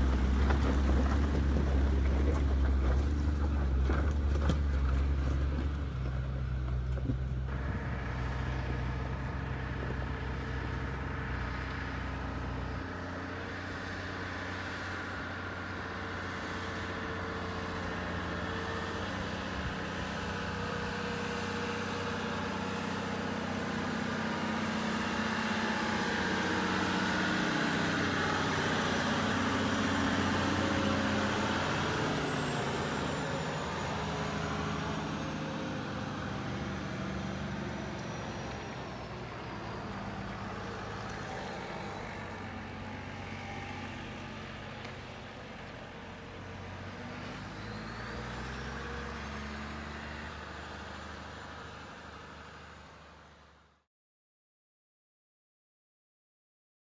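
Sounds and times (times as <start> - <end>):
remote-control truck running: 15.0 - 52.1.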